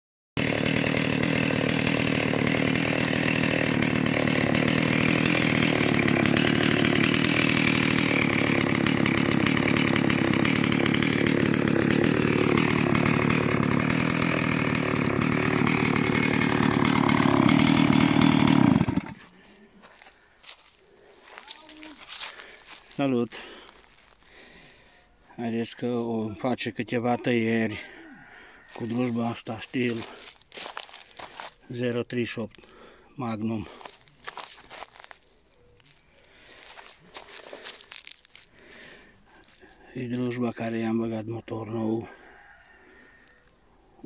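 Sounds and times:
chainsaw idling: 0.4 - 24.8, 28.6 - 43.4.

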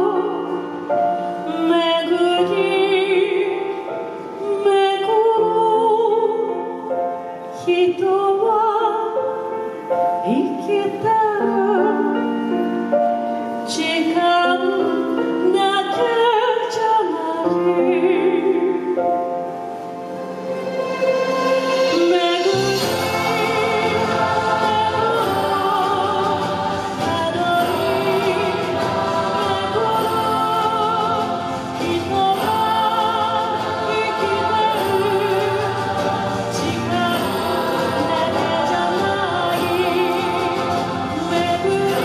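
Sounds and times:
woman singing with vibrato: 0.0 - 6.9, 7.5 - 9.4, 10.2 - 12.8, 13.6 - 19.6, 20.2 - 42.0
instrumental accompaniment: 9.1 - 42.0.

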